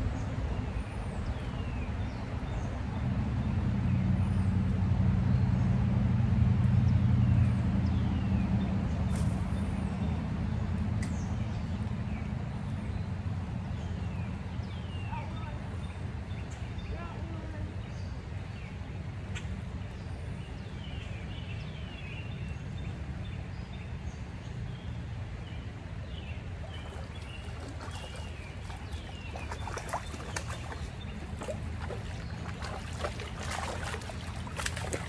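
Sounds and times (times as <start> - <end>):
birds chirping: 24.8 - 35.0
wading and splashing: 26.3 - 35.0
river flowing over stones: 26.4 - 35.0.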